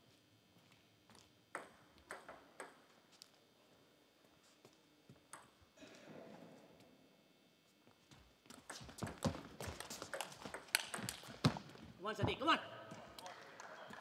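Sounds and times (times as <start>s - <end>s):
table tennis ball bouncing: 1.5s - 2.9s, 5.3s - 5.6s, 8.5s - 12.5s.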